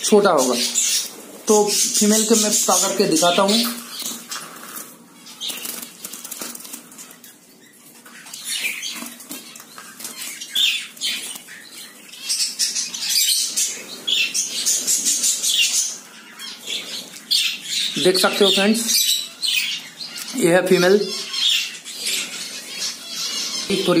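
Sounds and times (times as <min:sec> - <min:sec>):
bird fluttering wings in cage: 0:04.0 - 0:07.0.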